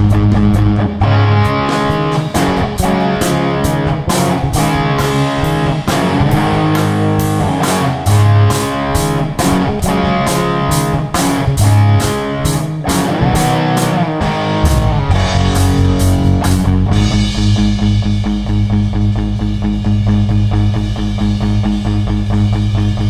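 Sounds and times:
guitar music with steady beat: 0.0s - 23.0s.

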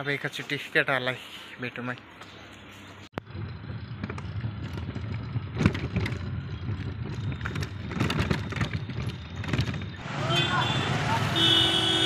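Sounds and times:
rattles and knocks: 3.2s - 10.0s
rickshaw rumbling along street: 3.2s - 12.0s.

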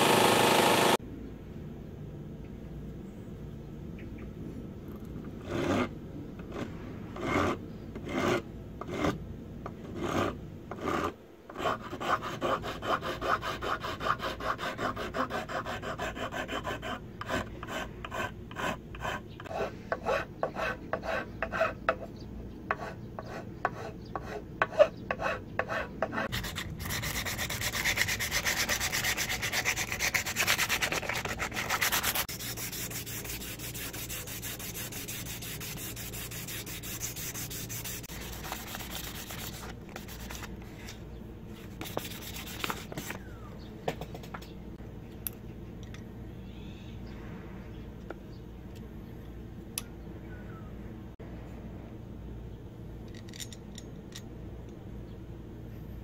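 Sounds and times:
rasp filing wood: 9.9s - 22.0s, 22.7s - 40.5s
sandpaper rubbing wood: 11.6s - 21.7s, 22.8s - 40.5s, 41.7s - 43.2s.

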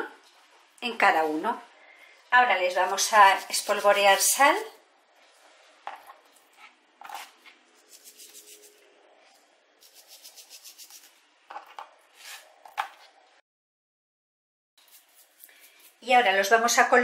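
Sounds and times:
hands rubbing salt on fish: 2.8s - 4.4s, 7.2s - 8.8s, 9.8s - 11.2s, 14.8s - 16.1s.

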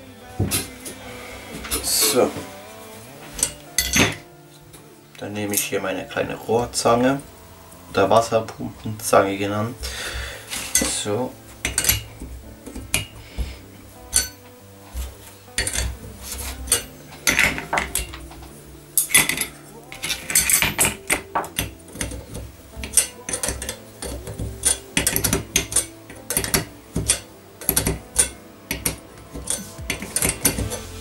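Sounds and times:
metal parts and tools clinking: 3.4s - 4.3s, 10.4s - 13.2s, 14.0s - 31.0s.

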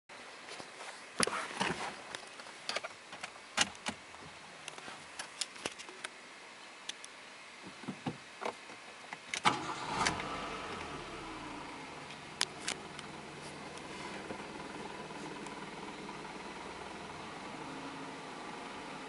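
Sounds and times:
steady hum with faint whine: 10.2s - 19.0s.

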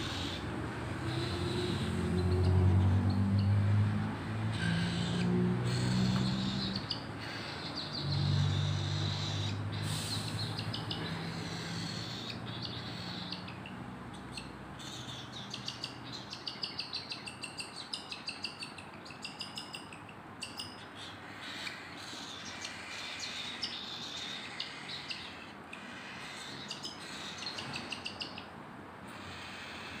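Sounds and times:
baby birds chirping: 0.0s - 28.5s, 29.1s - 30.0s.

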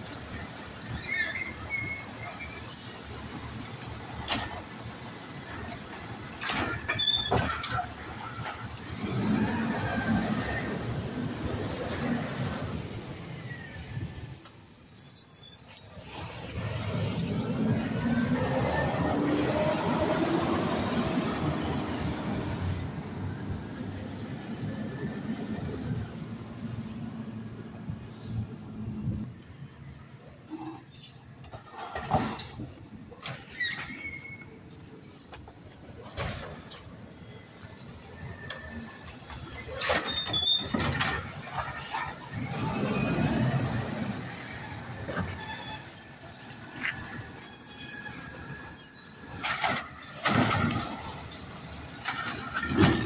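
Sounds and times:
garbage truck driving past: 6.4s - 13.6s, 39.8s - 53.0s.

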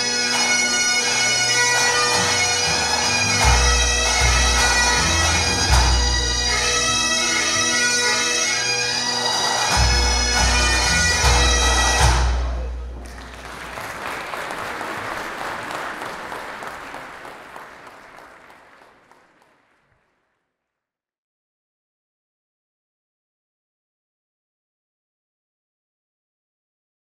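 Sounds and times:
bagpipes and drums playing: 0.0s - 13.4s
audience applause: 8.8s - 20.4s.

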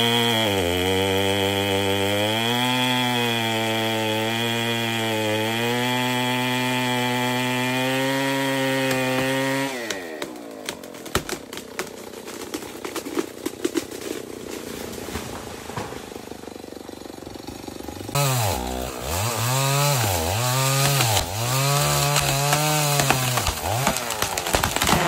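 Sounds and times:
chainsaw cutting wood: 0.0s - 25.0s
wood clicking and cracking: 8.8s - 14.6s, 20.7s - 25.0s.

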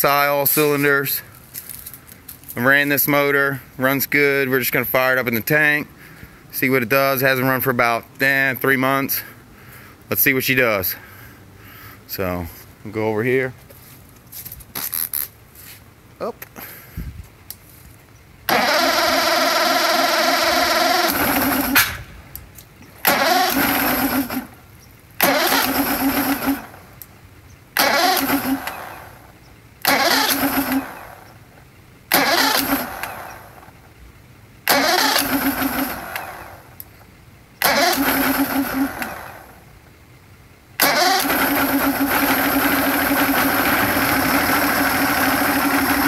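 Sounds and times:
outboard engine starting and running: 18.5s - 22.1s, 23.0s - 26.9s, 27.8s - 31.3s, 32.1s - 33.8s, 34.6s - 36.8s, 37.6s - 39.7s, 40.8s - 46.0s.

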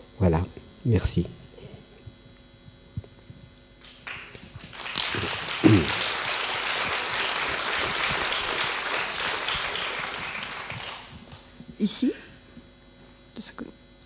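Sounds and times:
audience applauding: 3.8s - 11.4s.

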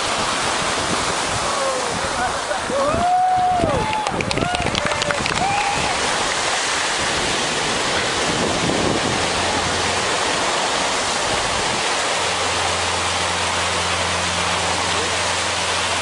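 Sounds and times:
waves washing on sandy beach: 0.0s - 16.0s
low steady hum: 5.4s - 16.0s.

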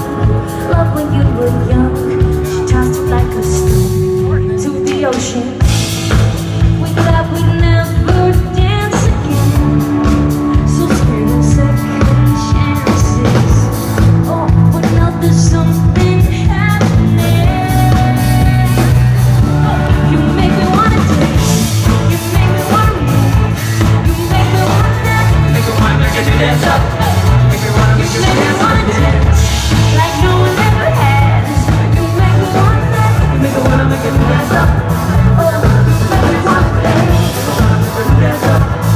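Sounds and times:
bass guitar: 0.0s - 38.9s
drum kit: 0.0s - 38.9s
electric guitar: 0.0s - 38.9s.

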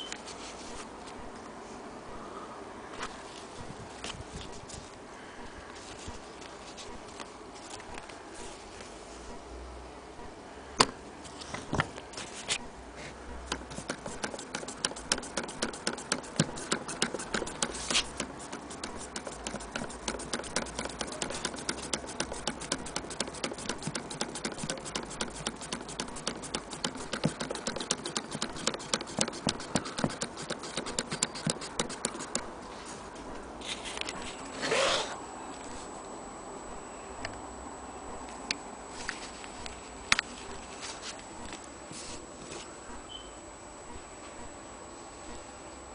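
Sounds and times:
sewing machine clicking: 13.5s - 32.5s.

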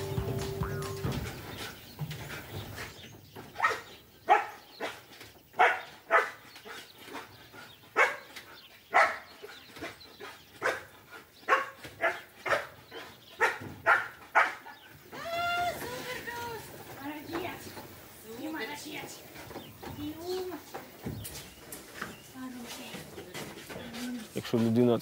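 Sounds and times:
dog barking: 3.6s - 5.0s, 5.6s - 6.4s, 8.0s - 8.3s, 8.9s - 9.3s, 10.6s - 10.9s, 11.5s - 12.8s, 13.4s - 14.7s.

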